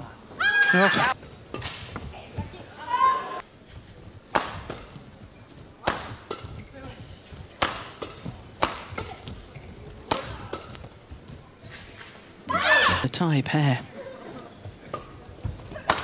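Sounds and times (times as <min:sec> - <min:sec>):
rackets hitting shuttlecock: 0:01.2 - 0:02.1, 0:04.3 - 0:05.0, 0:05.8 - 0:06.8, 0:07.6 - 0:10.9, 0:14.8 - 0:16.0.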